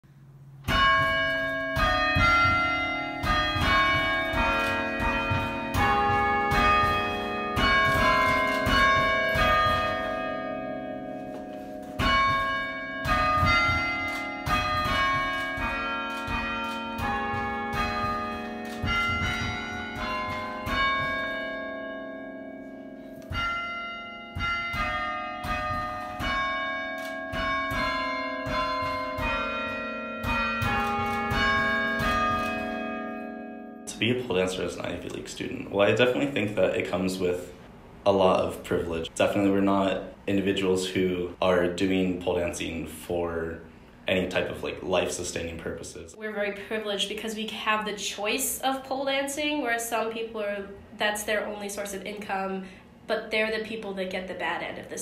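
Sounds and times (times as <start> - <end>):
bells ringing a tune: 0.7 - 35.1.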